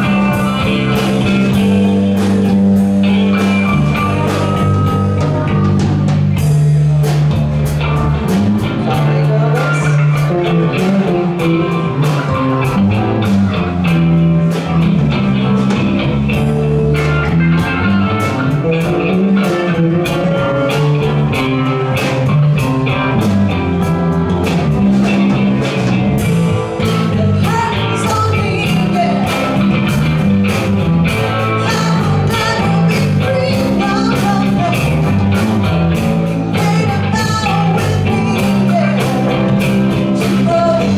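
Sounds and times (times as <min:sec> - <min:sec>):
live rock band playing: 0:00.0 - 0:40.9
person singing: 0:08.6 - 0:12.2, 0:26.9 - 0:29.7, 0:31.5 - 0:35.2, 0:36.5 - 0:40.9.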